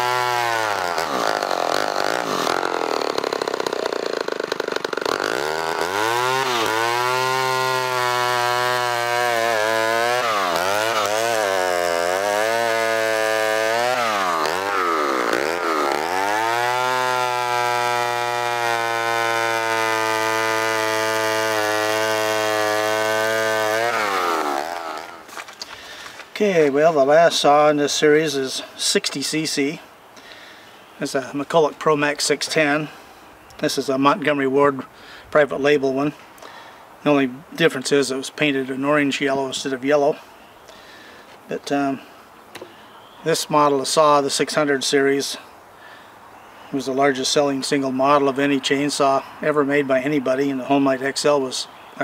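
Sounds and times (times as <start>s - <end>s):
chainsaw cutting a log: 0.0s - 26.3s.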